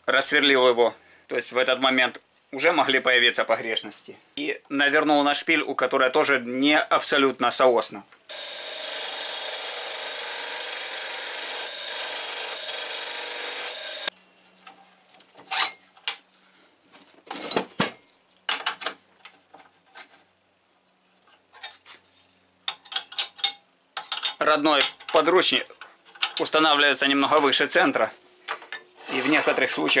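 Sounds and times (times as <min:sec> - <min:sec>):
tools knocking and clinking: 0:17.5 - 0:19.0, 0:22.7 - 0:26.5
lathe chisel scraping wood: 0:29.0 - 0:30.0.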